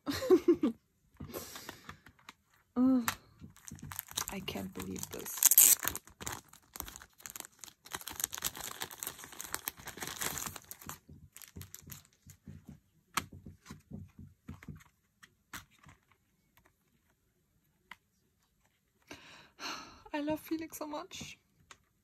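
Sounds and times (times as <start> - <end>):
packaging crinkling and rustling: 3.4 - 12.4.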